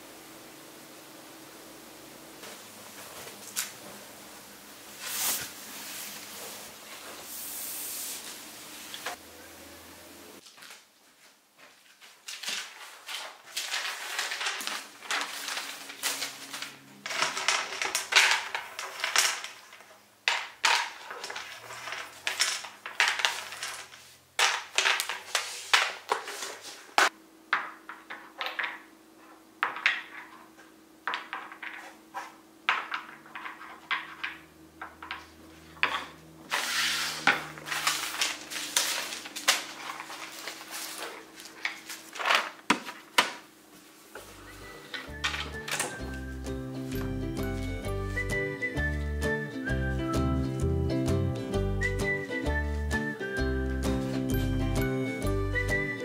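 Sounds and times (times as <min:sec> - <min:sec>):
paper rustling: 0:11.6 - 0:27.1, 0:35.0 - 0:47.1
crayons clicking into plastic case: 0:13.5 - 0:26.5
wooden toy pieces knocking: 0:17.1 - 0:26.3, 0:27.5 - 0:28.9, 0:29.6 - 0:32.0, 0:32.7 - 0:36.1, 0:44.9 - 0:46.1.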